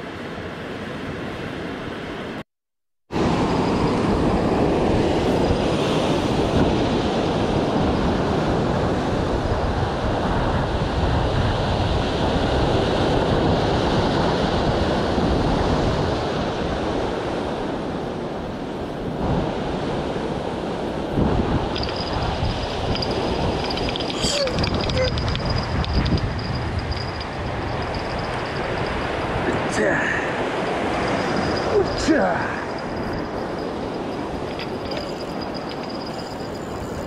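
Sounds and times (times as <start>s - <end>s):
ocean surf breaking on rocks: 11.7s - 37.0s
wind buffeting microphone: 19.0s - 37.0s.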